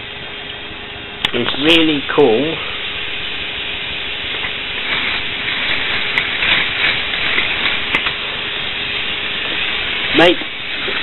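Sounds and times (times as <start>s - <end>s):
faint motor hum: 0.0s - 11.0s.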